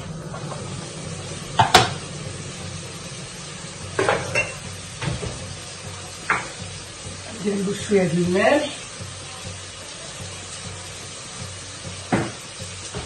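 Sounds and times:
steady low hum: 0.0 - 11.8
pot knocks: 1.5 - 2.0, 3.9 - 7.4, 9.0 - 13.0
metal cookware clattering: 3.8 - 10.8.

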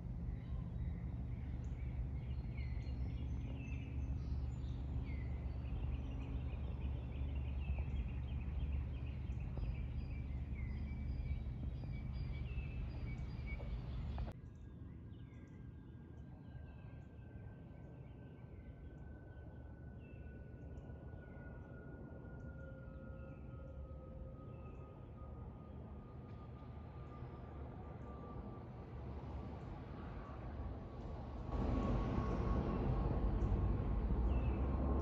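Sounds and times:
low steady rumble: 0.0 - 14.4
songbirds chirping: 0.0 - 25.8.

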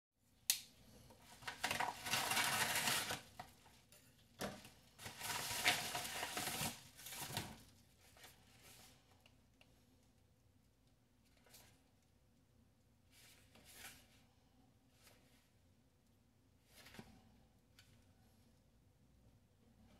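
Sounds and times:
paper rustling and tearing: 1.3 - 3.4, 5.0 - 8.7.

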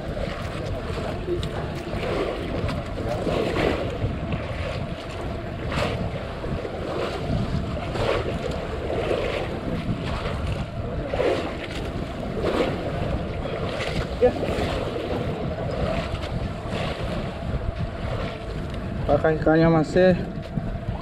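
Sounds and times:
waves splashing against boat hull: 0.0 - 21.0
wind buffeting microphone: 0.0 - 21.0.

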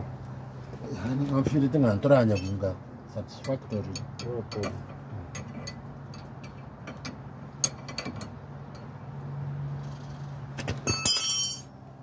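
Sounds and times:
slide hammer metal clank: 10.8 - 11.8.

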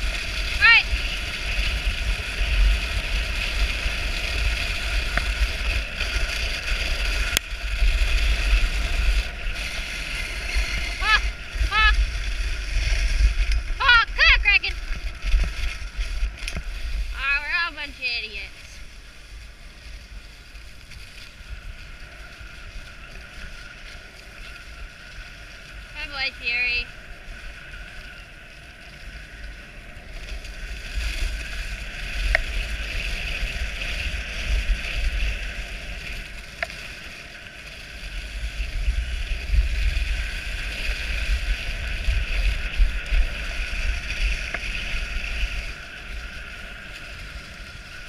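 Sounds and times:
wind on microphone: 0.0 - 19.0
sled runners hissing over snow: 0.0 - 48.0.

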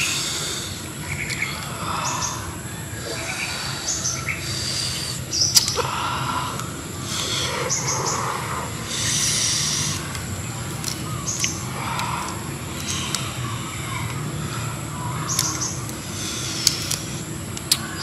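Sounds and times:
birds chirping: 0.0 - 18.0
chewing and sucking: 9.0 - 13.3.

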